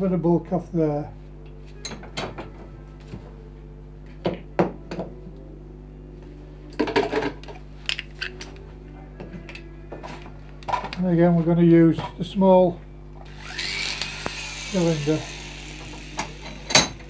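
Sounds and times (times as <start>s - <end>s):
steady low hum: 2.7s - 17.0s.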